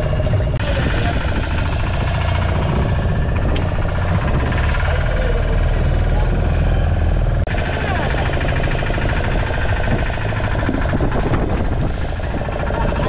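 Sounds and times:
boat engine running: 0:00.0 - 0:13.0
men talking: 0:00.4 - 0:02.2, 0:03.4 - 0:07.0, 0:12.3 - 0:13.0.

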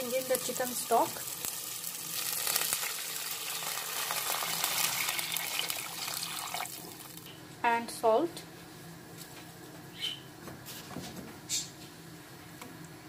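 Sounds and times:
stock pouring into hot pan: 0:00.0 - 0:07.2
onion and tomato sizzling: 0:00.0 - 0:07.3.

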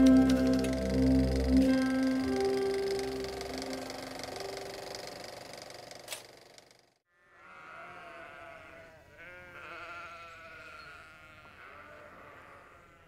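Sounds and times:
lamb bleating: 0:07.3 - 0:13.0.

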